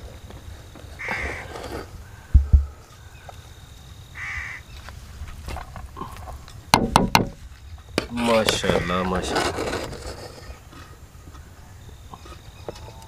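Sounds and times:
crow cawing: 1.0s - 1.5s, 4.2s - 4.7s, 8.6s - 9.1s
dull thumps: 2.3s - 2.8s, 6.7s - 7.4s.

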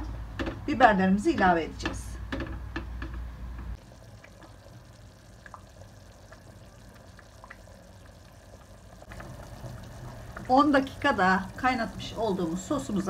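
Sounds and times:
thick sauce bubbling in a pot: 3.8s - 13.0s.

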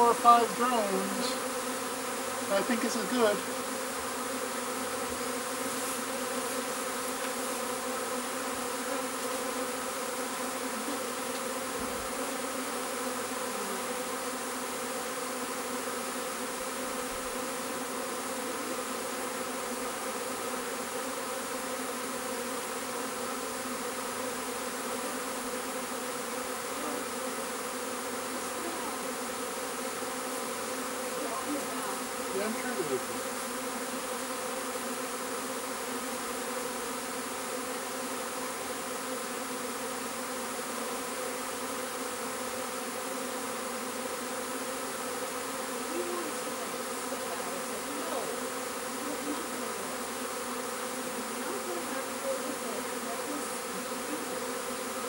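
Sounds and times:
bee swarm buzzing: 0.0s - 55.0s
single bee buzzing close: 0.0s - 55.0s.

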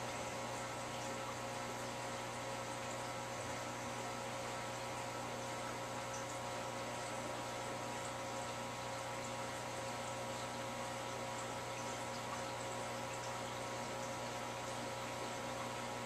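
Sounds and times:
electrical hum: 0.0s - 16.0s.

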